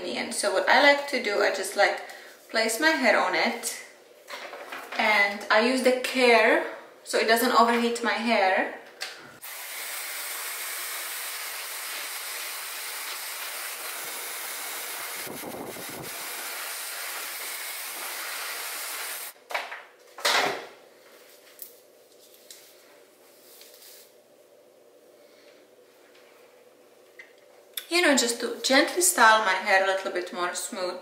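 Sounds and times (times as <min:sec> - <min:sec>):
hair dryer blowing: 0:09.4 - 0:19.4.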